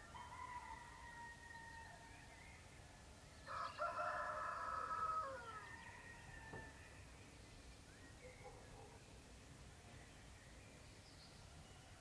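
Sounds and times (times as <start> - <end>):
rooster crowing: 3.5 - 5.8.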